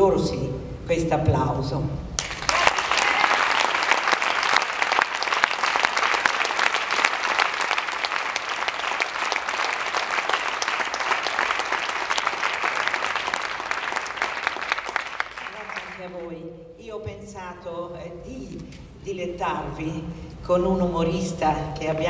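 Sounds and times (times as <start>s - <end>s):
audience applauding: 2.2s - 16.2s.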